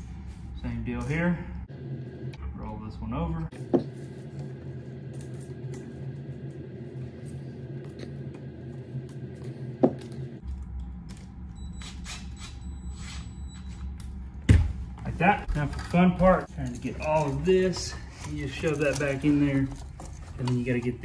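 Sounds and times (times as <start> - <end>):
steady low hum: 0.0 - 21.0
handling wires and outlet: 15.5 - 21.0.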